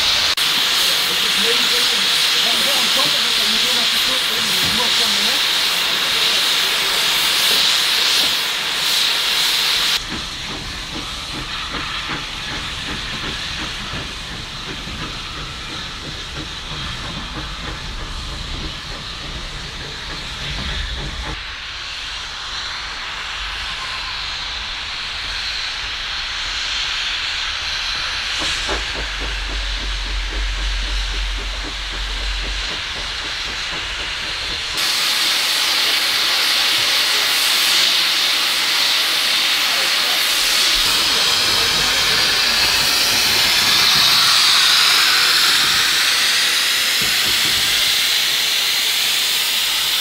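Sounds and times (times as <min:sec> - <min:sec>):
steam locomotive hissing: 0:00.0 - 0:50.0
train running: 0:00.0 - 0:50.0
low rumble: 0:27.6 - 0:34.8.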